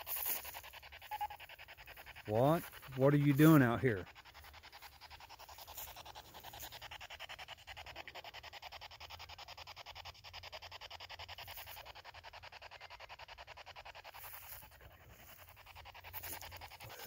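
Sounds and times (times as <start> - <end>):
radio static stuttering: 0.0 - 6.9, 14.2 - 17.0.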